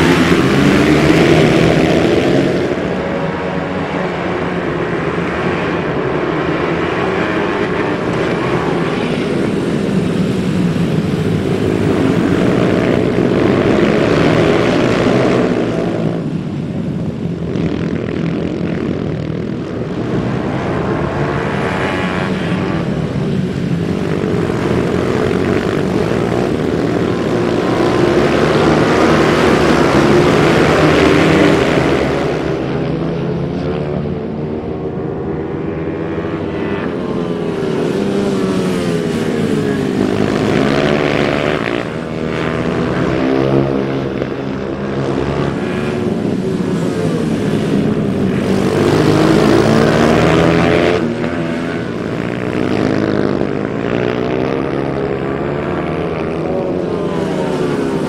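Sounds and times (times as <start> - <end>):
small bike engines droning: 0.0 - 58.0.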